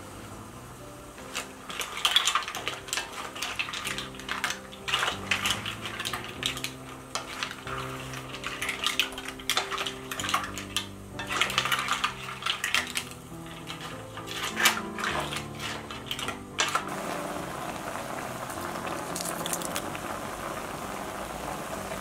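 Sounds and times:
soft background music: 0.0s - 22.0s
mussel shells clattering: 1.3s - 16.9s, 18.9s - 19.9s.

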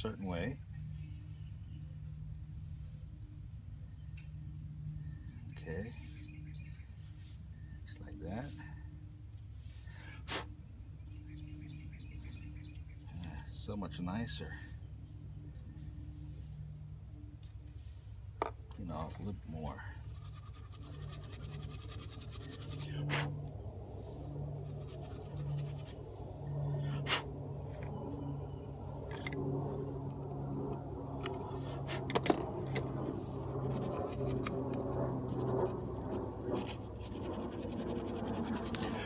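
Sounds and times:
low hum: 0.0s - 39.0s
wire brush scratching metal: 19.8s - 26.5s, 31.5s - 39.0s.

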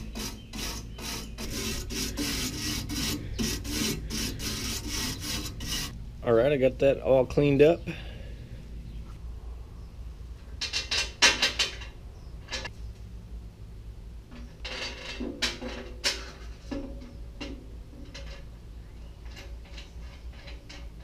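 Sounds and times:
low steady hum: 0.0s - 21.0s
metal clanks and clicks: 14.3s - 18.6s, 19.2s - 21.0s.

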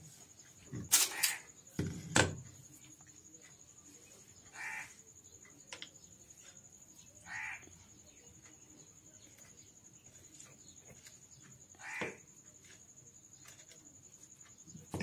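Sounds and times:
crow cawing: 4.5s - 5.0s, 7.2s - 7.8s, 11.7s - 12.3s.

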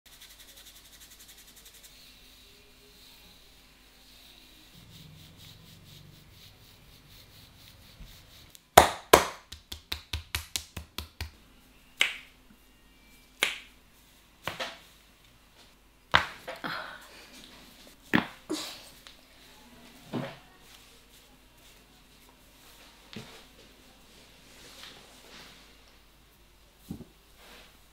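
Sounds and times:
hand slaps and cracks on head: 8.8s - 11.4s, 12.0s - 12.3s, 13.4s - 13.7s.

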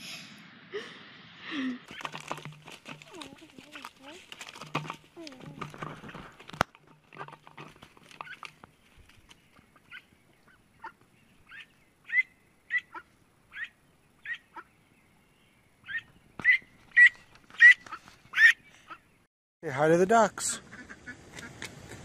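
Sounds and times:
duck calling: 9.8s - 14.7s, 20.5s - 21.6s.

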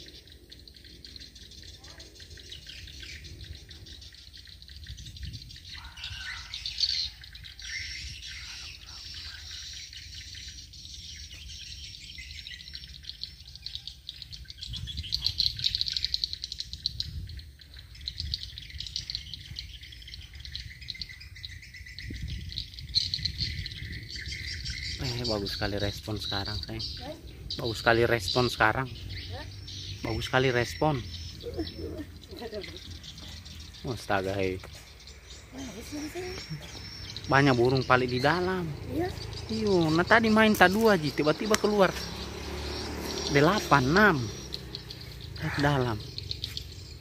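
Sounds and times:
birds chirping and twittering: 0.0s - 47.0s.

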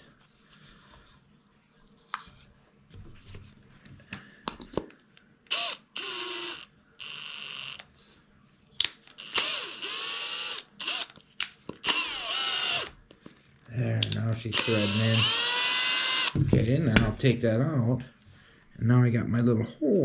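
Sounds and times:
cordless drill driving screw: 5.5s - 7.8s, 9.2s - 11.1s, 11.8s - 12.9s, 14.5s - 16.4s.

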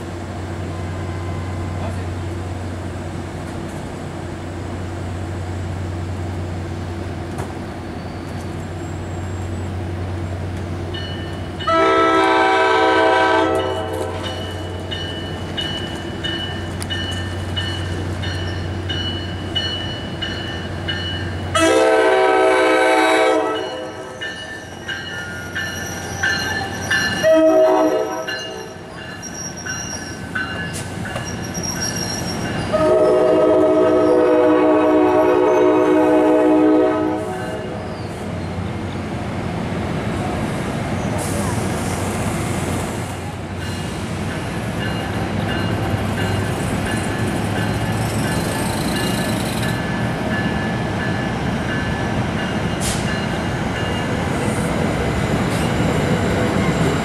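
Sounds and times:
low train rumble: 0.0s - 57.0s
train air horn blasts: 11.6s - 14.3s, 21.5s - 24.2s, 27.2s - 28.8s, 32.7s - 37.8s.

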